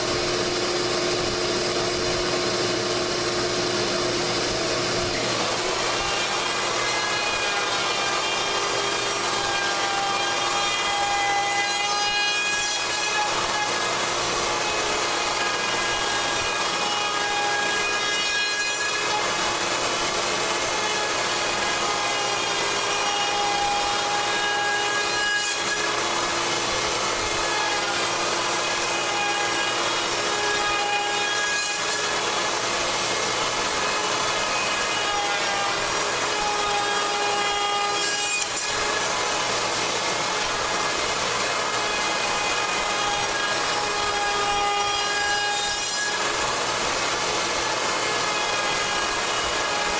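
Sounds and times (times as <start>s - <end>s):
router motor whine: 0.0s - 12.1s.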